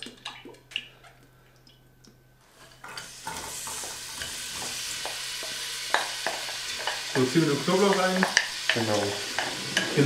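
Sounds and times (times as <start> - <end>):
onions sizzling in oil: 2.5 - 10.0.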